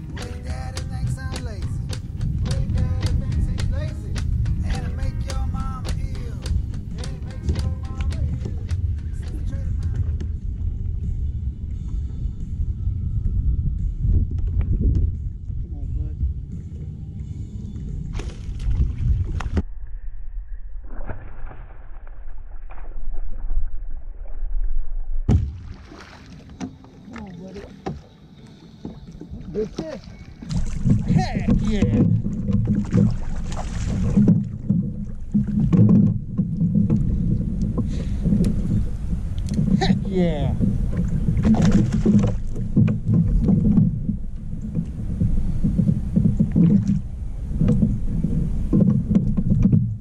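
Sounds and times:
gear clicking and knocking on kayak: 0.0 - 10.4, 28.8 - 50.0
water splashing: 0.0 - 11.1, 18.0 - 19.6, 20.9 - 50.0
wind rumbling on microphone: 0.0 - 26.8, 28.8 - 50.0.

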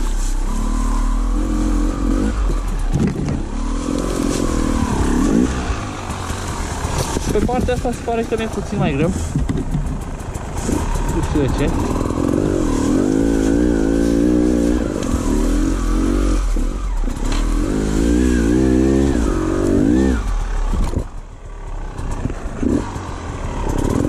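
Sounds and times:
dirt bike engine revving: 0.0 - 24.0.

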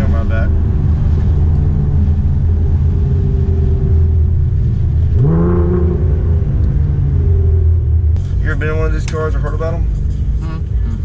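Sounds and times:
car engine and road drone: 0.0 - 11.0
rising pitched tone: 1.4 - 8.6.

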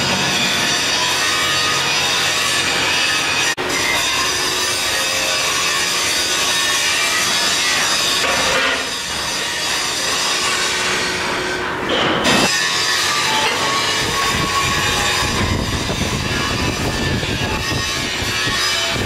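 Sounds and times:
metal fabrication racket: 0.0 - 19.0.

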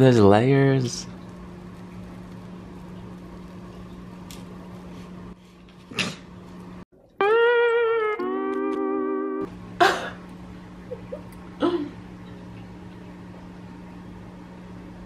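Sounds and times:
low steady hum: 0.0 - 15.0
background music with held note: 7.0 - 9.5.

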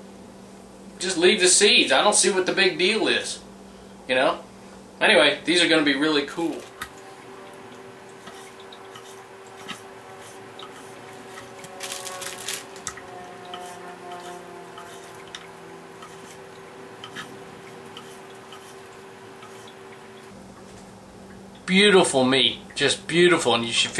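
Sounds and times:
steady hum: 0.0 - 23.9
knife cutting wet meat: 7.7 - 20.1.

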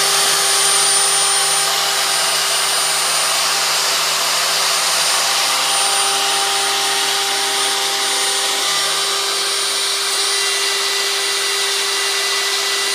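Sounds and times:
cutter milling metal: 0.0 - 12.9
router spindle whine: 0.0 - 12.9.

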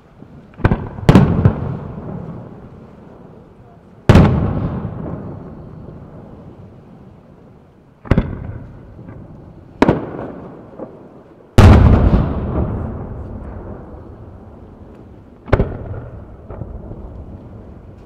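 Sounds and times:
rolling echo: 0.5 - 6.6, 8.0 - 18.0
firework shells booming: 0.6 - 2.6, 4.0 - 5.6, 8.0 - 17.9.

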